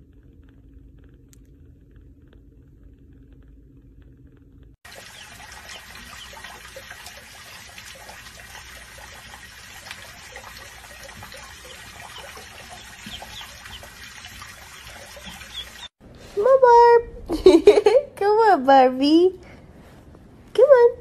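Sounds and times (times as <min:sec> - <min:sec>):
water running from faucet into sink: 0:04.8 - 0:16.0
ducklings peeping: 0:10.9 - 0:15.9.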